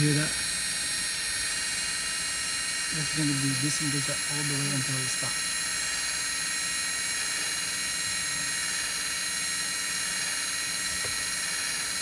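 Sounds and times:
parking brake motor whining: 0.0s - 12.0s.

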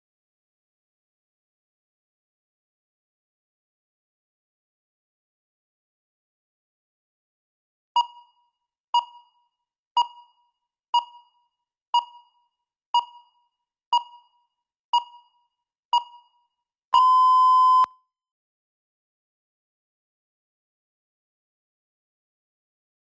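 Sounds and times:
short timer beeps: 8.0s - 8.4s, 10.0s - 10.4s, 13.0s - 14.4s, 15.0s - 15.4s, 16.0s - 16.4s, 17.0s - 18.0s
long timer beep: 17.0s - 17.9s.

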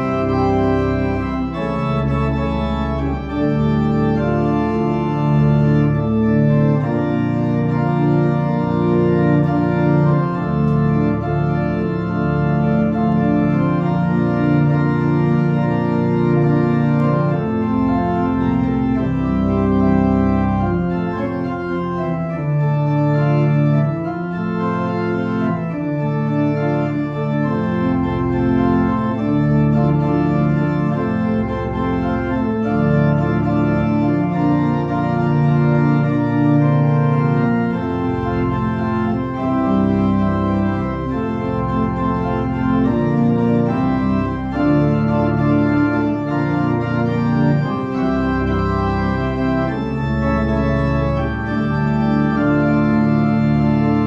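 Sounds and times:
organ playing sustained chords: 0.0s - 54.0s.

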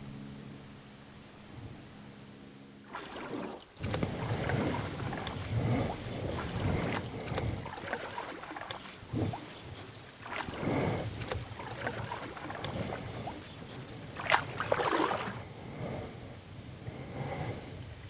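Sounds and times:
paddle splashing in water: 2.9s - 15.4s.

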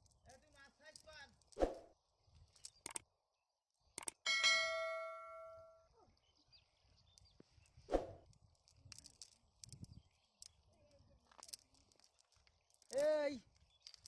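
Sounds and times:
clicks: 2.6s - 3.0s
bell-like notification ding: 4.3s - 5.7s.

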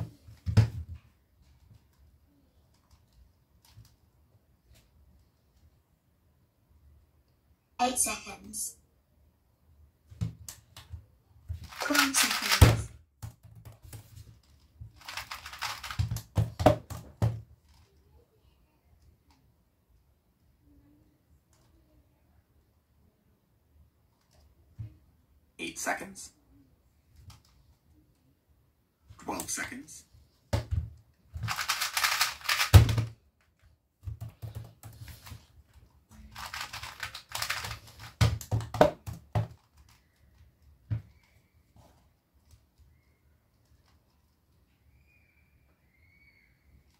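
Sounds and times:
puzzle cube clacking: 11.5s - 17.9s, 31.4s - 33.2s, 34.2s - 41.3s
speed cube clicking: 11.6s - 12.8s, 15.0s - 16.4s, 31.4s - 33.0s, 36.3s - 38.6s
cube knocking on surface: 37.4s - 39.6s.

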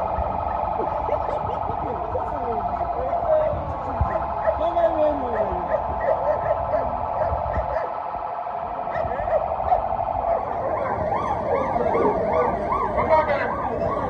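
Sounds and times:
fast siren yelp: 0.0s - 14.0s
passing trucks rumble: 0.0s - 14.0s
police sirens: 0.0s - 14.0s.

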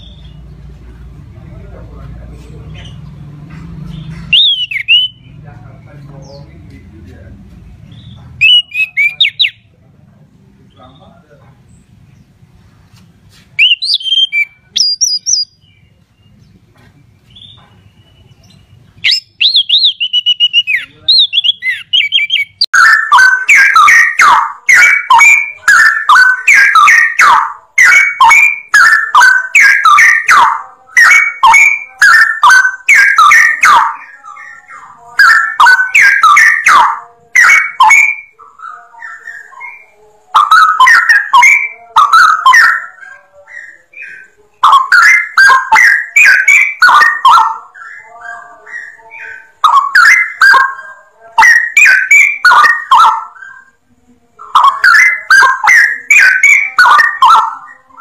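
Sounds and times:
bulbul singing: 0.0s - 9.8s, 13.2s - 58.0s
thrush chirping and warbling: 3.8s - 5.6s, 7.9s - 9.7s, 13.6s - 15.7s, 18.8s - 58.0s.

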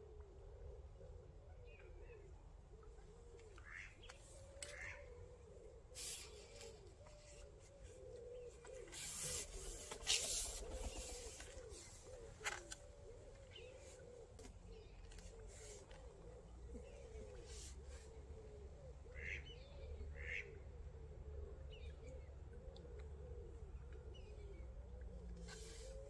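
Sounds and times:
pigeons cooing: 0.0s - 26.0s
rustling noise: 8.8s - 12.8s.

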